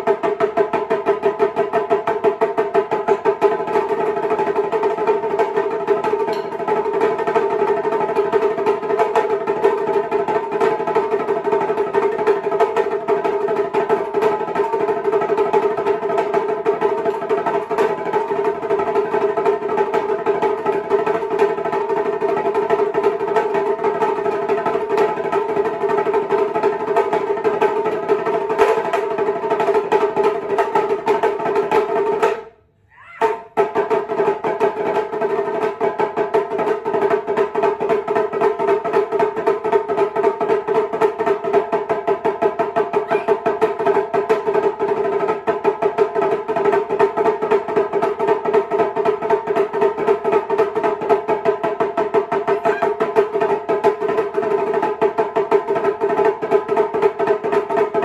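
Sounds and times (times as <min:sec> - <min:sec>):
small taiko drums struck fast: 0:00.0 - 0:58.0.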